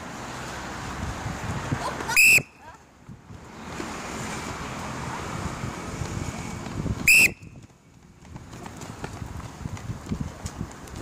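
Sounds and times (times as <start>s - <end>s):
wind noise on microphone: 0.6s - 11.0s
whistle blast: 2.2s - 2.6s, 7.1s - 7.6s.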